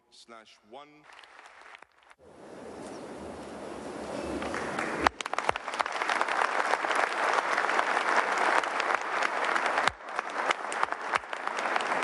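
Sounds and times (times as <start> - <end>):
audience applauding: 1.1 - 2.2, 4.2 - 12.0.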